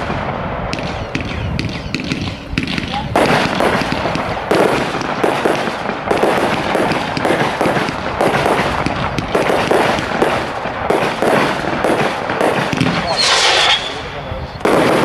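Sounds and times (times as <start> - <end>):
aerial firework bursts: 0.0 - 15.0
firework cake firing shots: 0.0 - 15.0.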